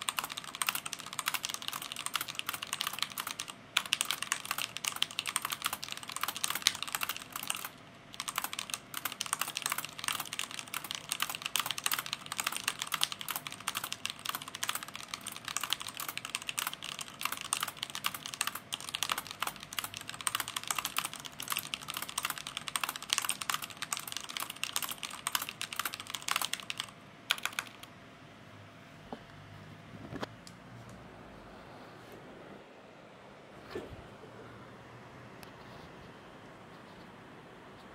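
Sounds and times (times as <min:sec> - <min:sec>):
fast typing on mechanical keyboard: 0:00.0 - 0:27.9.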